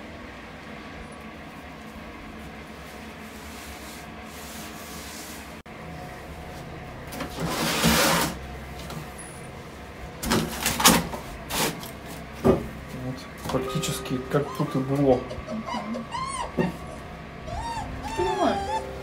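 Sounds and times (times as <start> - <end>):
wire crate scraping on tiles: 7.2 - 8.4.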